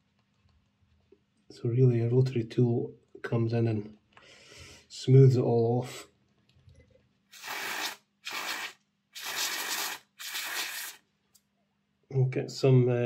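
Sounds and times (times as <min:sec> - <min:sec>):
aerosol spray hissing bursts: 0:07.3 - 0:11.0.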